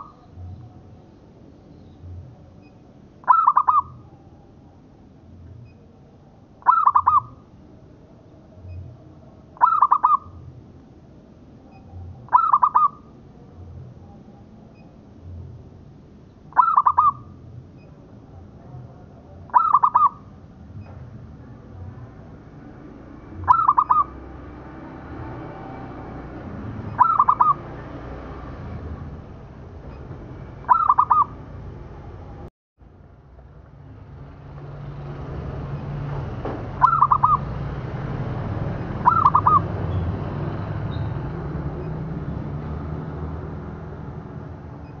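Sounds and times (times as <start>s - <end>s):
dove cooing: 3.2s - 4.1s, 6.6s - 7.4s, 9.6s - 10.4s, 11.7s - 13.1s, 16.5s - 17.3s, 19.5s - 20.3s, 23.4s - 24.2s, 26.9s - 27.6s, 30.7s - 31.4s, 36.8s - 37.5s, 39.0s - 39.7s.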